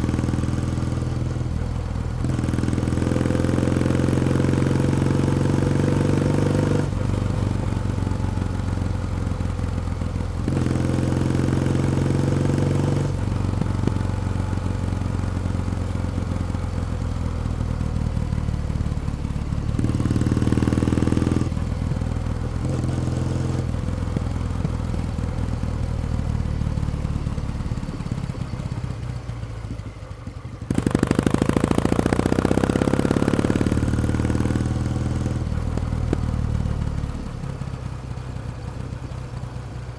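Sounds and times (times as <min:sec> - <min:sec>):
motorcycle engine and exhaust: 0:00.0 - 0:39.9.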